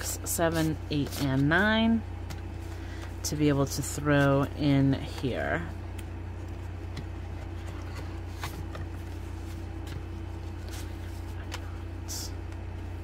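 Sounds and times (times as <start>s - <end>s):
low background hum: 0.0s - 13.0s
paper and plastic rustling: 6.4s - 11.8s.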